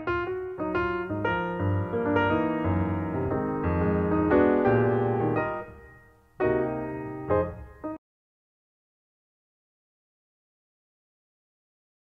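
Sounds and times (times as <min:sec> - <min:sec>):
piano chords: 0:00.0 - 0:08.0.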